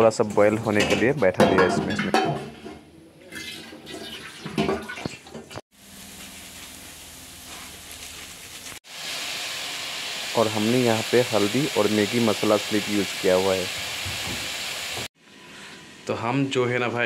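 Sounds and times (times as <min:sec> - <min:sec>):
food sizzling in a pan: 0:05.7 - 0:15.1.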